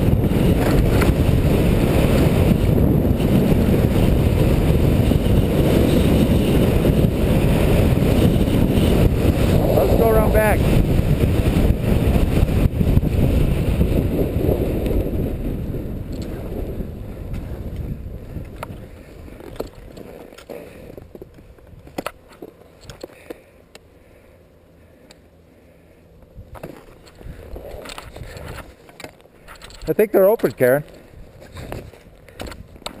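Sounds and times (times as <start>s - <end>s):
wind on microphone: 0.0s - 20.2s, 26.4s - 28.7s, 31.1s - 33.0s.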